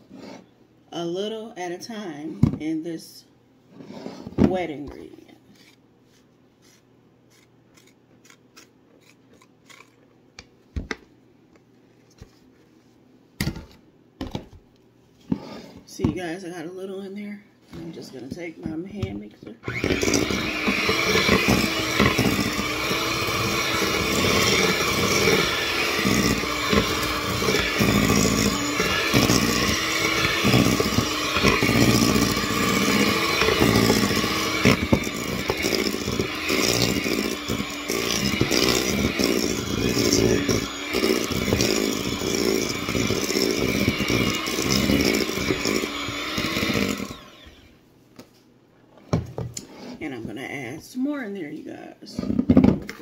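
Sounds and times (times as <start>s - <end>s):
electric hand mixer running: 19.6s - 47.8s.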